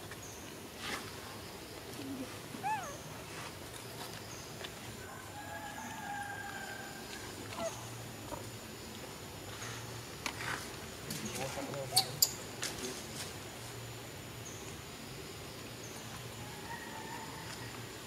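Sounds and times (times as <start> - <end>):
rooster crowing: 5.0 - 7.0, 16.4 - 17.9.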